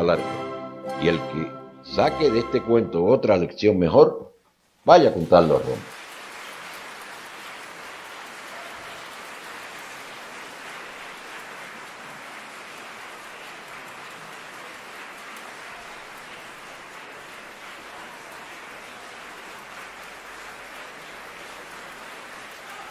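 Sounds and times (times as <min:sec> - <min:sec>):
audience applauding: 0:04.9 - 0:22.9.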